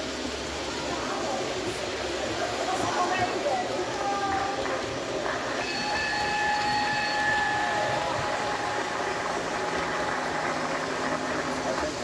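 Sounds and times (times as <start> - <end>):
model train whine: 4.6 - 12.0.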